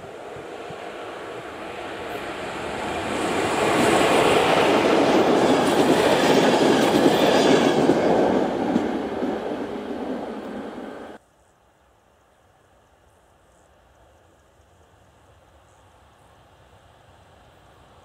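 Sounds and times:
train wheels on rail passing: 0:00.0 - 0:11.2.

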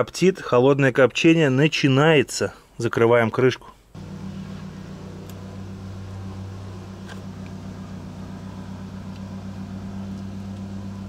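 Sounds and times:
small motor humming: 0:04.0 - 0:11.0.

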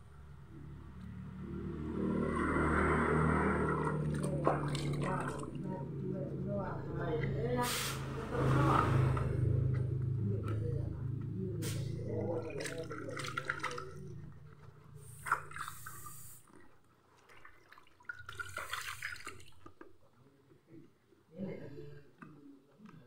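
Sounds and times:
water sloshing in a plastic tub: 0:02.0 - 0:06.8, 0:11.8 - 0:20.1.

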